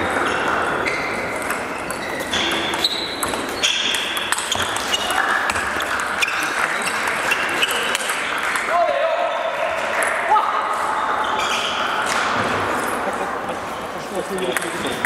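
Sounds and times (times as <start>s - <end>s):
large hall ambience: 0.0s - 15.0s
table tennis ball hits: 1.2s - 8.7s.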